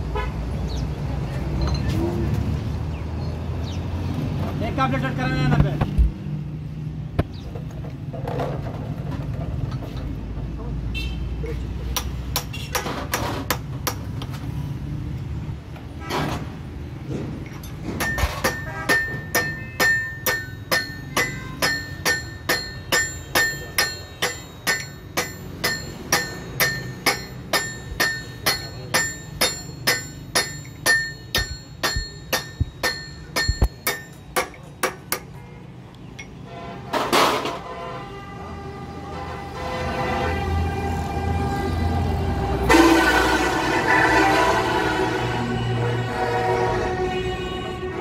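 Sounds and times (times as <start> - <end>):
hammer striking metal: 11.9 - 14.1, 17.5 - 35.4.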